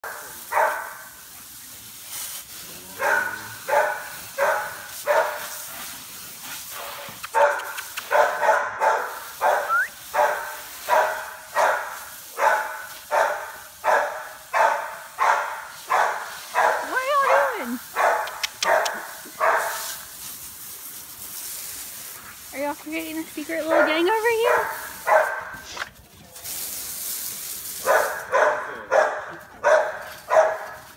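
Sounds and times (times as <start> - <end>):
dog barking: 0.0 - 1.0, 2.9 - 5.6, 7.3 - 20.0, 23.7 - 25.6, 27.8 - 30.8.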